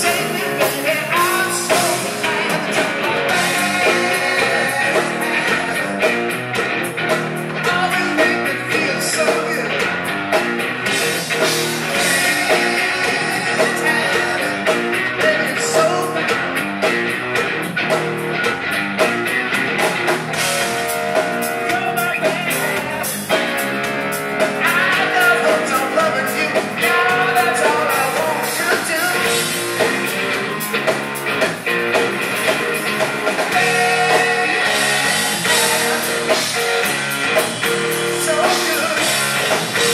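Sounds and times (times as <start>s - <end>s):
lead vocal singing: 0.0s - 6.6s, 7.5s - 10.0s, 10.9s - 16.5s, 21.2s - 30.9s, 32.8s - 39.9s
drum kit beat: 0.0s - 39.9s
electric guitars: 0.0s - 39.9s.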